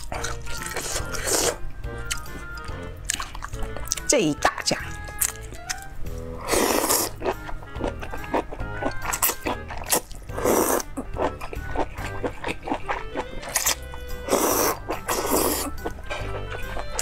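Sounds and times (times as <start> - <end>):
background music: 0.0 - 17.0
loud slurping: 0.6 - 1.7, 6.4 - 7.3, 9.2 - 11.0, 12.8 - 16.4.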